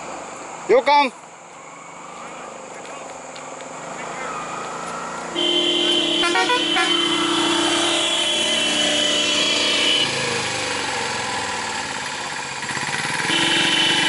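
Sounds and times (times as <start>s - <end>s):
small engines idling: 1.4s - 14.0s
vehicle horn blast: 5.3s - 11.5s, 13.0s - 14.0s.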